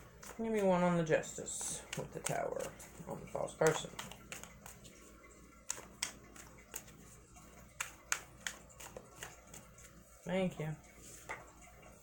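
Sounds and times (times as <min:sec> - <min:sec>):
cards being shuffled: 0:01.4 - 0:05.0, 0:05.6 - 0:10.0.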